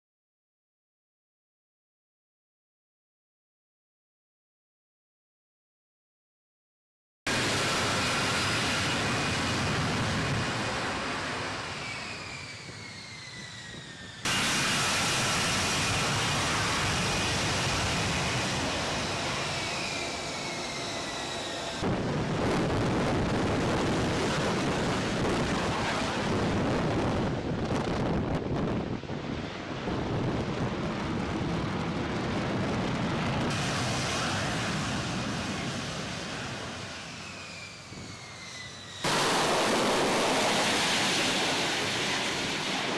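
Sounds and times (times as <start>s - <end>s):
jet engine roar with whine: 7.3s - 42.9s.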